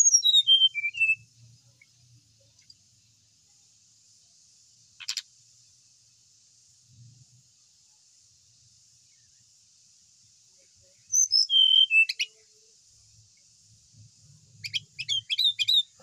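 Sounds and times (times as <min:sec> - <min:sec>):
bird singing whistled notes: 0:00.0 - 0:02.0, 0:11.0 - 0:12.4, 0:14.5 - 0:16.0.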